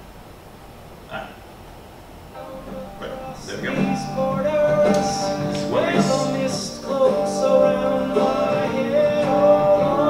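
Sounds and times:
man singing over band: 3.3s - 10.0s.

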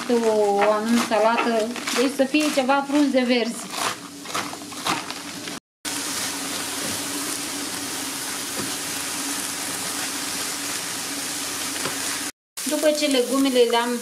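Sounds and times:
spatula stirring in a pan: 0.0s - 5.0s
knife cutting lettuce on a board: 0.2s - 5.1s
vegetables sizzling in a pan: 5.9s - 14.0s.

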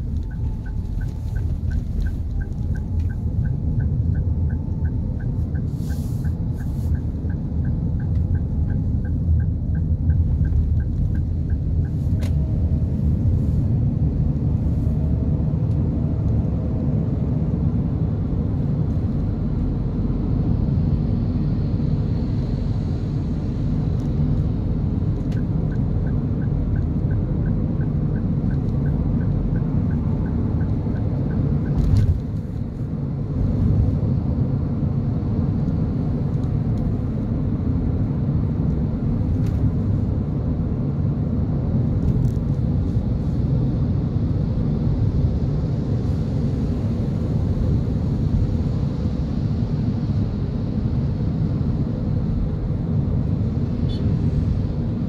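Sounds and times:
turn signal ticking: 0.0s - 14.6s, 23.8s - 33.7s
car tyres and engine rumble: 0.0s - 55.0s.

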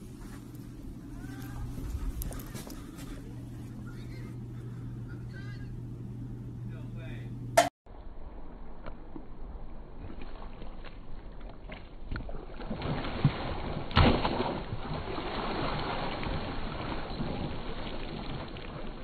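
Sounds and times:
water swishing: 10.1s - 19.0s
thud with a splash: 12.1s - 19.0s.

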